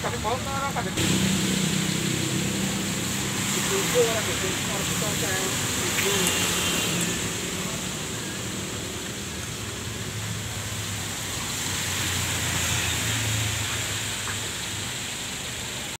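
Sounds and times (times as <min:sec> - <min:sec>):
rain on street and vehicles: 0:00.0 - 0:16.0.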